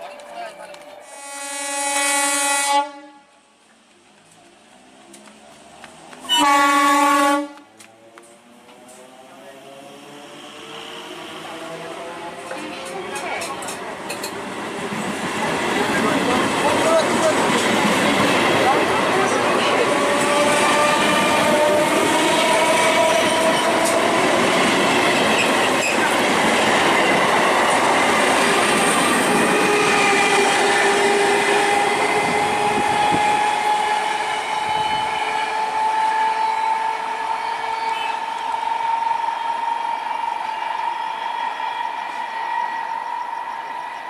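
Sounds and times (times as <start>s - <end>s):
train whine rising in pitch: 5.1s - 13.0s, 17.8s - 44.0s
train wheels rushing and clattering: 7.4s - 44.0s.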